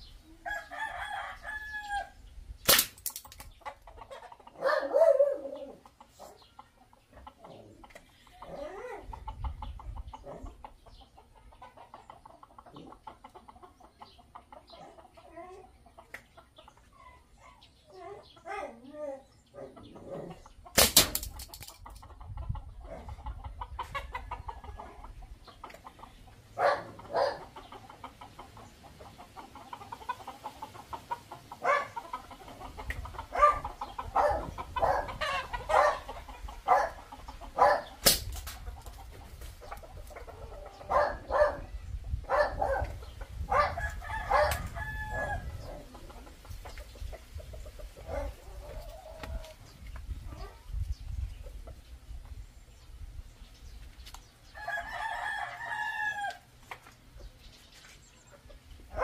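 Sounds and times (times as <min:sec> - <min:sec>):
chickens clucking: 0:00.0 - 0:59.0
rooster crowing: 0:00.4 - 0:02.2, 0:43.6 - 0:45.6, 0:54.6 - 0:56.5
marble gun sharp cracks: 0:02.6 - 0:03.5, 0:20.8 - 0:21.8, 0:38.0 - 0:38.6.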